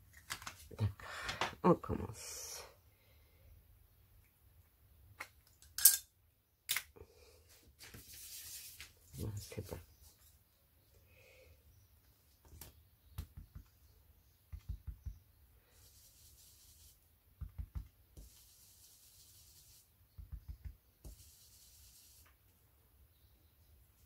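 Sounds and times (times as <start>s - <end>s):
stencil brush tapping: 13.2s - 13.8s, 14.5s - 15.3s, 17.3s - 22.2s
soft brushing hiss: 14.6s - 17.2s, 18.2s - 22.6s.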